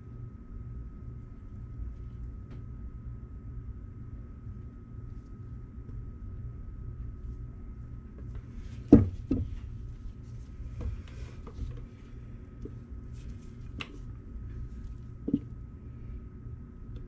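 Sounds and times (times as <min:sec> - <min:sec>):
steady low hum: 0:00.0 - 0:17.0
plastic pitcher knocking on board: 0:08.9 - 0:09.6.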